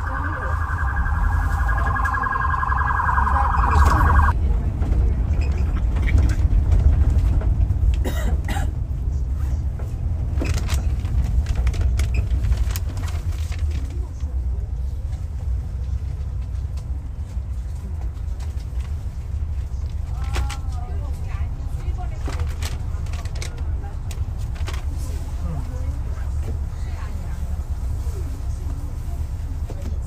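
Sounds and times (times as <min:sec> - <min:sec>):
warbling electronic alarm: 0:00.0 - 0:04.3
city street rumble: 0:00.0 - 0:30.0.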